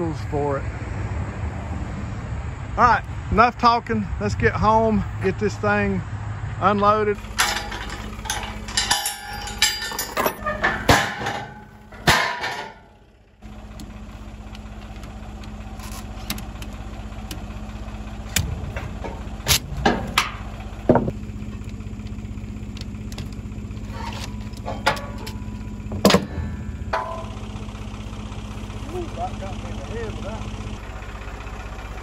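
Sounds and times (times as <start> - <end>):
engine idling: 7.1 - 32.0
chain clanking against metal frame: 7.2 - 13.0, 18.7 - 21.1, 23.9 - 27.7.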